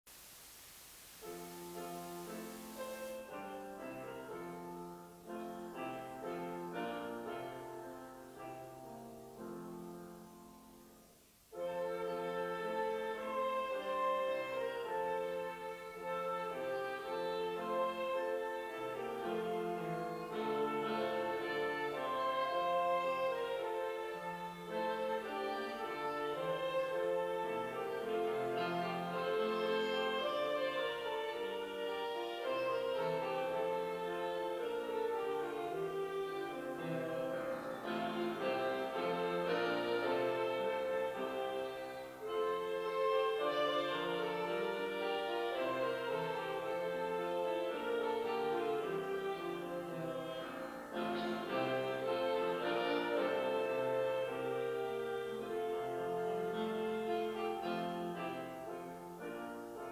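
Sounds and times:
hiss: 0:00.1 - 0:07.3
woodwind: 0:00.1 - 0:59.9
violins playing slow chords: 0:11.6 - 0:59.0.

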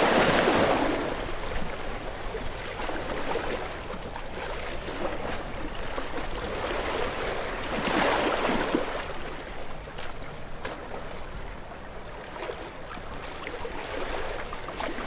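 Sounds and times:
waves washing onto shore: 0:00.0 - 0:11.4.

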